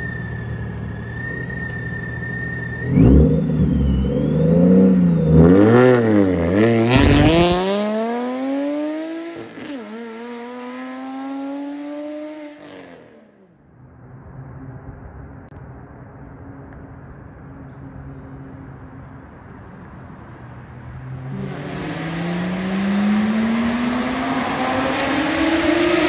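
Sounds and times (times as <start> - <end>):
high supercharger whine: 0.0 - 11.8, 12.5 - 26.0
car engine accelerating hard: 2.4 - 13.4, 21.0 - 26.0.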